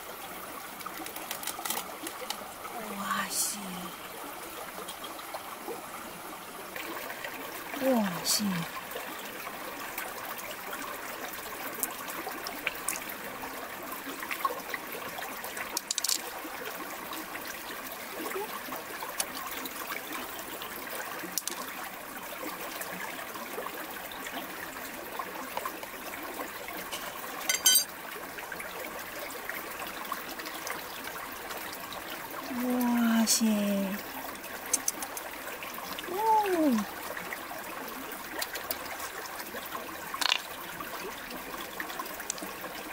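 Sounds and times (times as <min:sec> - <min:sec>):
water trickling over rocks: 0:00.0 - 0:42.9
shell and pearls clicking: 0:15.7 - 0:16.3, 0:34.7 - 0:35.3, 0:40.2 - 0:40.5.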